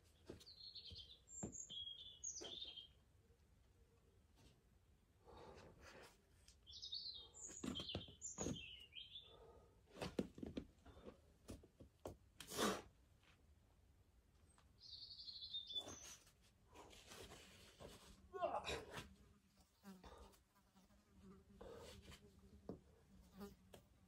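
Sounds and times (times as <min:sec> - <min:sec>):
small birds chirping: 0:00.1 - 0:03.0, 0:06.6 - 0:09.6, 0:14.4 - 0:16.4.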